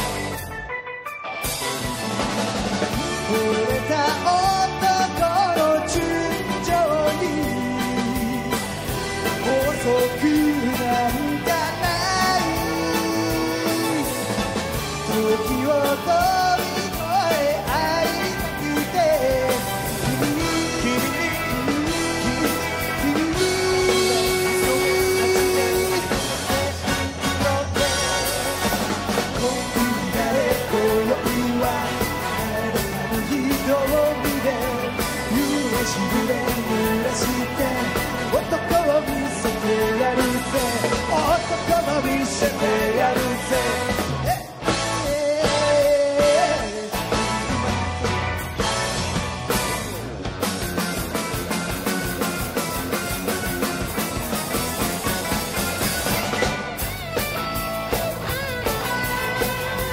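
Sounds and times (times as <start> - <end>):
drums: 0.0 - 59.9
electric guitars: 0.0 - 59.9
keyboards: 0.0 - 59.9
male lead vocal: 2.9 - 47.3.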